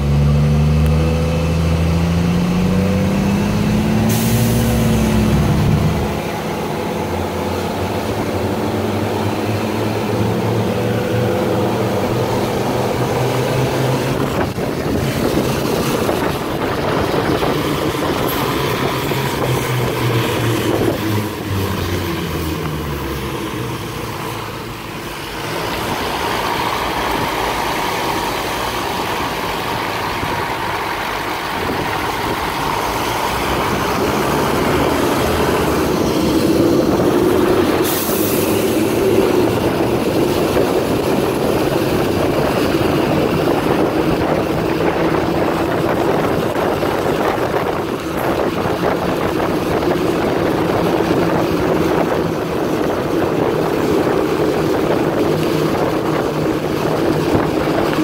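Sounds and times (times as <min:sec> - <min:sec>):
diesel truck engine running: 0:00.0 - 0:58.0
tyres swishing on wet pavement: 0:02.7 - 0:58.0
brief air hiss: 0:04.0 - 0:05.0, 0:37.8 - 0:38.8.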